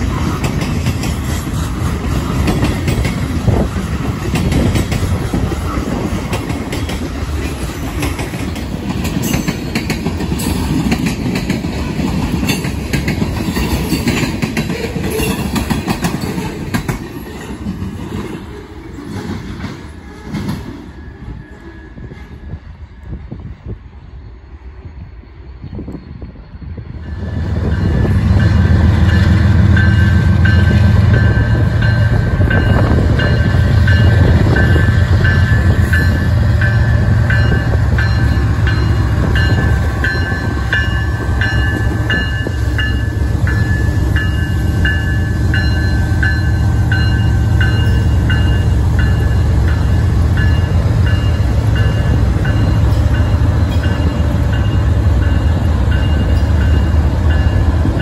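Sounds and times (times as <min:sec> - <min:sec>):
diesel locomotive engine rumble: 0:00.0 - 0:58.0
bell ringing: 0:27.7 - 0:57.6.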